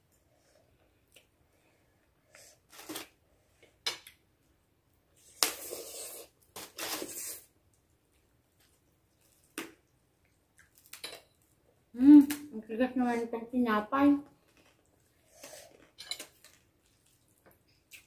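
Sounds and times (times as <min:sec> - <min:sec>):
noodles being slurped: 0:05.5 - 0:07.5.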